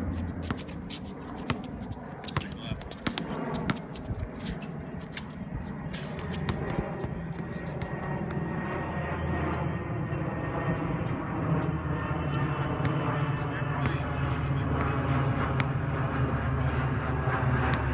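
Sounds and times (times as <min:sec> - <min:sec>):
basketball bouncing on court: 0:00.0 - 0:09.8, 0:12.8 - 0:14.1, 0:14.7 - 0:16.2, 0:17.7 - 0:17.9
low engine drone: 0:00.0 - 0:17.9.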